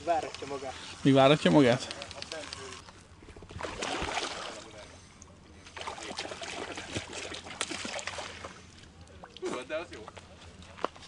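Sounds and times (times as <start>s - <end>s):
water splashing and sloshing: 2.9s - 10.8s.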